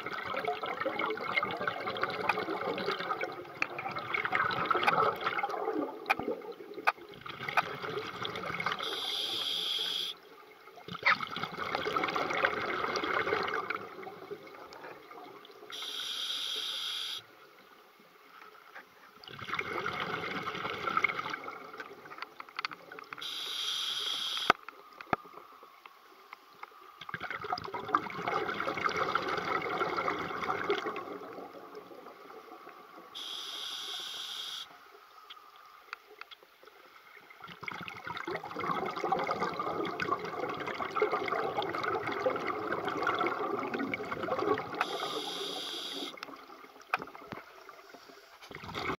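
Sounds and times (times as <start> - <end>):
bubbling exhaust underwater: 0.0 - 10.1, 10.9 - 16.2, 27.1 - 34.6, 37.4 - 47.9
hissing regulator inhale: 44.8 - 46.2.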